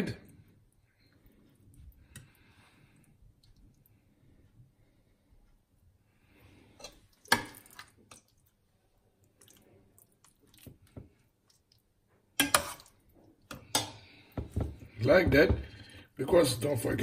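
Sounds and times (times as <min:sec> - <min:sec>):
wet squishy handling of raw chicken: 0:07.1 - 0:12.0.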